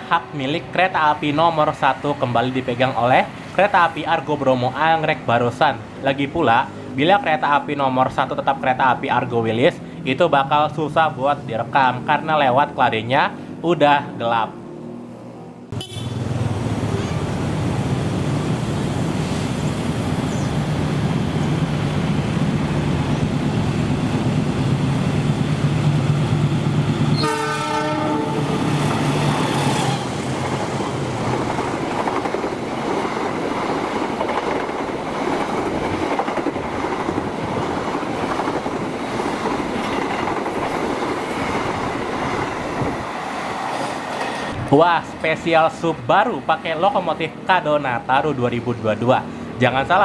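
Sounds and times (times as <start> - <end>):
locomotive horn blast: 15.7 - 17.4, 27.1 - 28.6
train wheels clickety-clack: 28.8 - 44.6.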